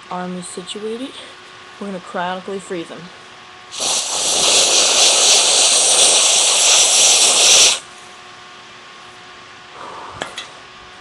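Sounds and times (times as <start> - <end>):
gas duster spraying hiss: 3.7 - 7.9.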